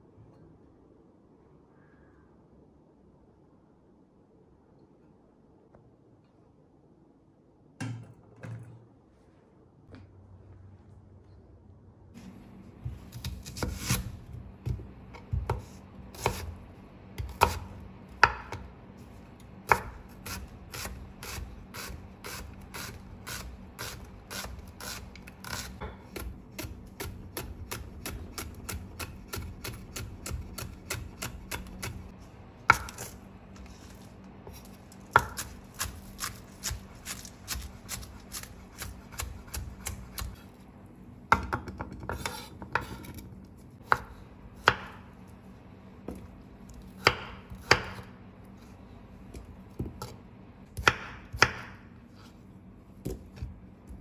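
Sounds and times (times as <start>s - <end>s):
knife chopping on wooden board: 34.5s - 40.4s, 43.8s - 45.0s, 47.0s - 48.1s, 50.8s - 51.8s.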